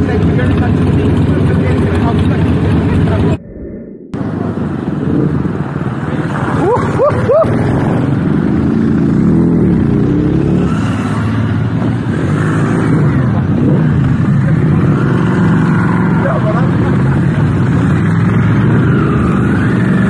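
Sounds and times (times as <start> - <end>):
motorcycles revving past: 4.2 - 20.0.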